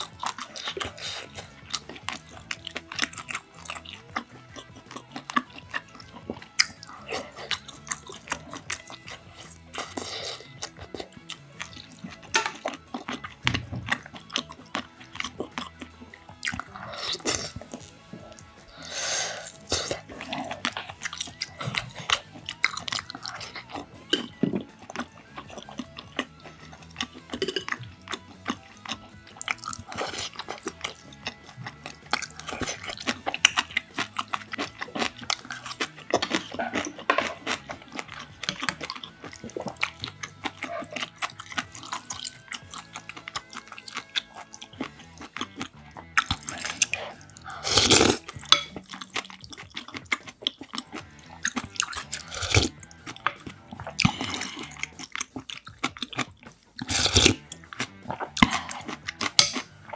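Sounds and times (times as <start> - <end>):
chewing and wet mouth sounds: 0.0 - 59.9
slurp from a spoon: 5.0 - 15.8, 16.5 - 45.4, 46.0 - 49.0, 50.6 - 55.6, 56.8 - 59.7
chopsticks clicking on dishes: 12.2 - 12.8, 34.6 - 39.4, 48.2 - 50.0, 59.2 - 59.8.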